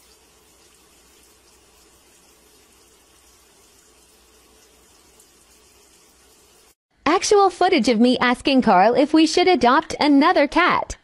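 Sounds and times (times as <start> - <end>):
water pouring into washing machine: 0.0 - 6.8.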